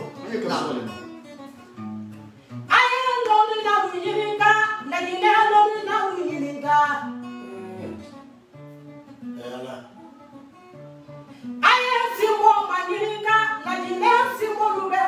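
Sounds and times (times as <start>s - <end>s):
plucked guitar: 0.0s - 15.0s
woman singing: 2.7s - 8.2s, 11.6s - 15.0s.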